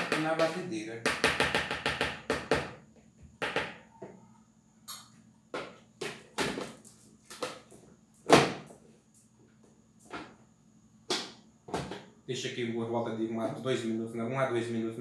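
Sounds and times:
utensil knocking on mixing bowl: 0:00.0 - 0:02.7.

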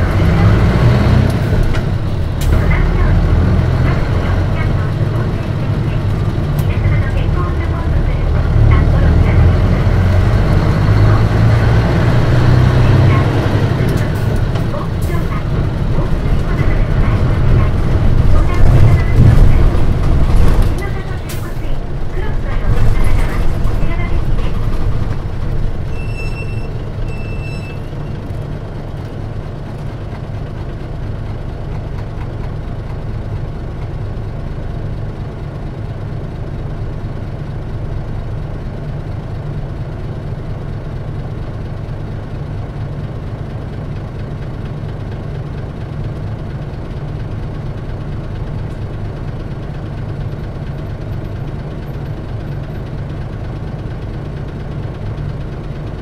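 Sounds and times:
bus diesel engine running: 0:00.0 - 0:56.0
short high beeps: 0:25.9 - 0:28.1.

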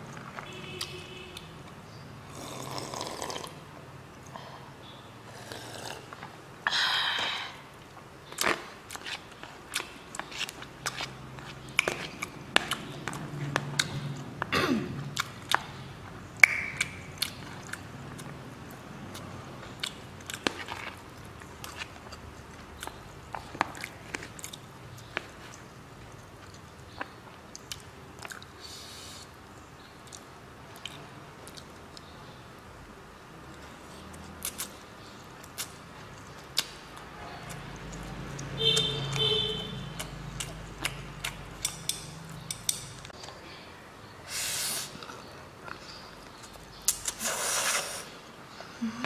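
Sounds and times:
chewing mouth clicks and lip smacks: 0:08.4 - 0:14.3, 0:16.4 - 0:28.5, 0:30.0 - 0:32.1, 0:34.0 - 0:38.8, 0:39.9 - 0:43.3
wet chewing mouth clicks: 0:08.4 - 0:14.3, 0:35.4 - 0:36.8, 0:39.9 - 0:43.3.

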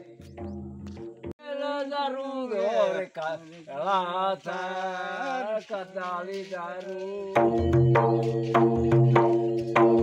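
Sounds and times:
man singing unaccompanied: 0:01.4 - 0:09.2
hand drum beating: 0:07.4 - 0:10.0.

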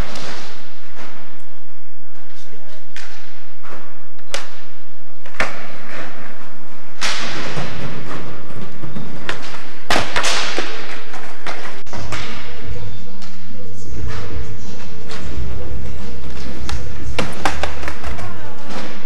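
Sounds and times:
skateboard wheels rolling: 0:13.3 - 0:19.0.

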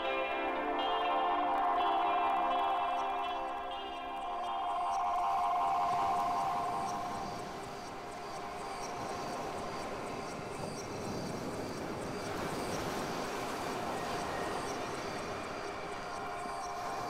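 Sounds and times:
synthesizer noise wash: 0:00.0 - 0:17.0
held synthesizer tones: 0:00.6 - 0:08.2
fast high ticking pattern: 0:00.8 - 0:11.8.

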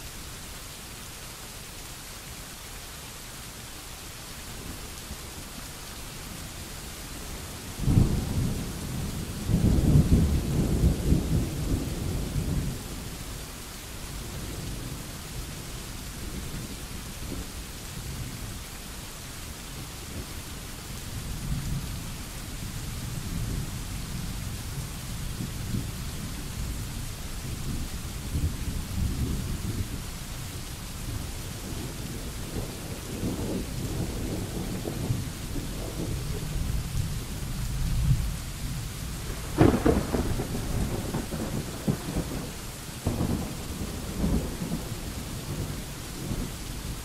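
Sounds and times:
rain hissing: 0:00.0 - 0:47.0
rolling thunder: 0:07.8 - 0:13.1, 0:31.1 - 0:47.0.

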